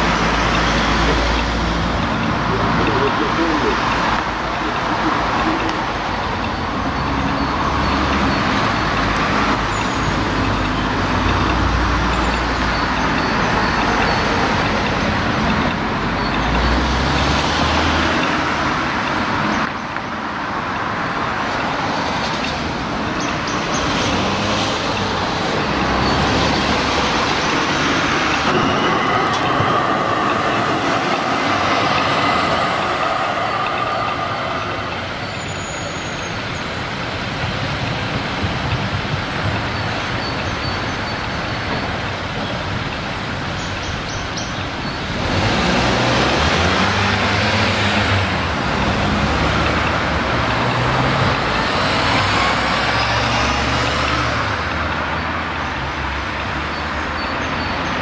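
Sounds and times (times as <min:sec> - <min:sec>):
tram whine: 0:00.0 - 0:56.0
tram wheels rumbling on rails: 0:00.0 - 0:58.0.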